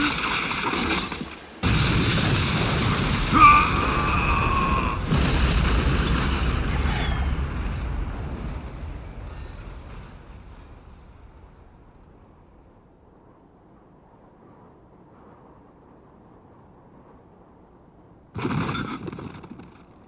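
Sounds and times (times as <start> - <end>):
heavy low rumble: 1.6 - 14.1.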